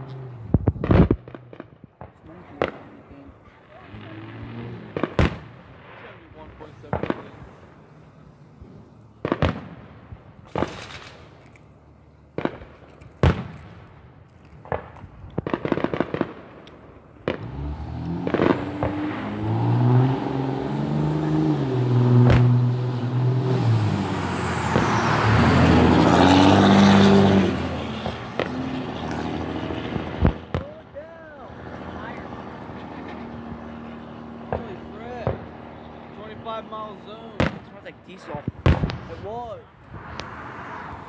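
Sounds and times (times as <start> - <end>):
distant fireworks bangs: 0.4 - 3.0, 3.8 - 7.8, 9.2 - 11.4, 12.3 - 17.6, 18.2 - 19.3, 24.7 - 25.0, 27.6 - 31.0, 31.6 - 40.1
fireworks crackling: 0.5 - 19.4, 24.2 - 25.8, 27.6 - 40.9
loud engine humming: 17.3 - 30.5.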